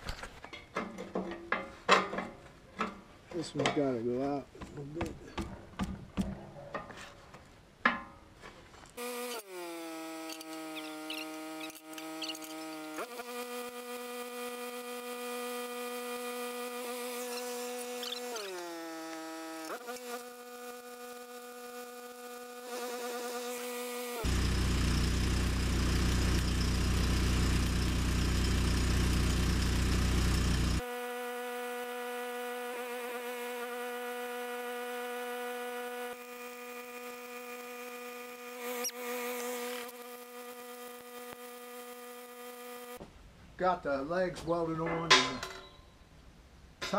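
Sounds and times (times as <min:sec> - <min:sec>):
welding arc buzzing: 0:09.0 - 0:43.0.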